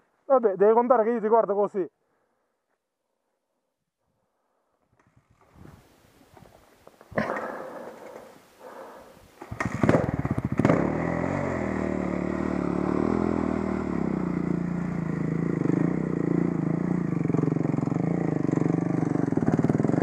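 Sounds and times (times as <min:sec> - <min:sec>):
motorcycle engine starting and idling: 0:09.4 - 0:20.0.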